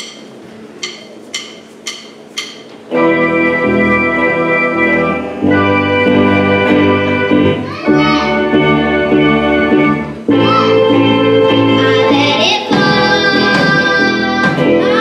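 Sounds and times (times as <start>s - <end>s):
count-in clicks: 0.0s - 2.9s
organ-like keyboard chords: 0.0s - 15.0s.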